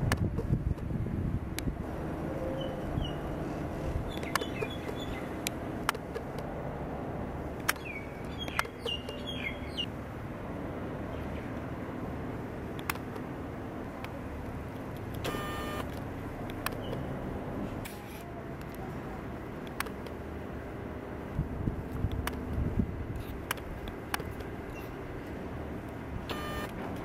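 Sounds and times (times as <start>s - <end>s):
sharp clicks: 4.1s - 6.5s, 12.7s - 13.3s, 14.0s - 17.1s, 19.6s - 20.2s, 22.0s - 22.6s, 23.2s - 27.0s.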